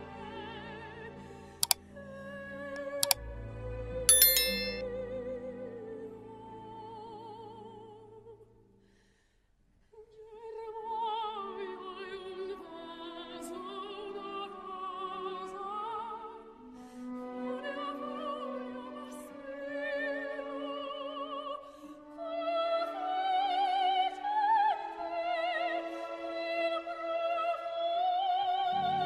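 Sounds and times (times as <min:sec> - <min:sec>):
opera soprano singing: 0:00.0 - 0:04.0, 0:04.9 - 0:08.5, 0:09.9 - 0:29.0
orchestra strings: 0:10.9 - 0:21.6.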